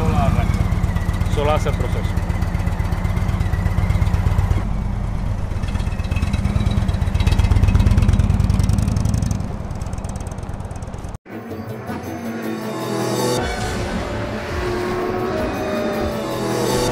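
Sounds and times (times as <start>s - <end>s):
motorcycle engine passing: 0.0s - 11.2s.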